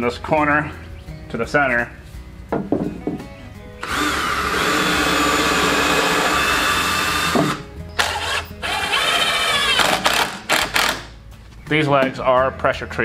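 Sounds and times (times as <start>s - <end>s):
cordless drill driving into wood: 3.8s - 11.1s.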